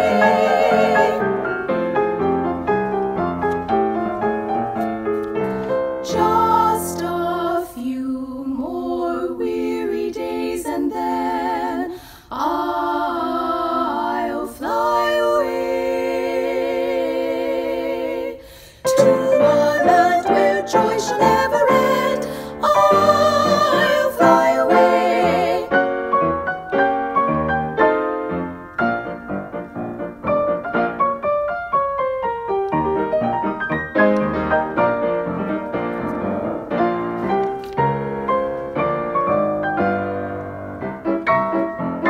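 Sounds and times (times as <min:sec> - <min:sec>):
piano accompaniment: 0:00.0 - 0:07.6, 0:18.8 - 0:42.0
woman singing in harmony: 0:06.1 - 0:25.8
breaths between phrases: 0:11.9 - 0:12.3, 0:18.4 - 0:18.8.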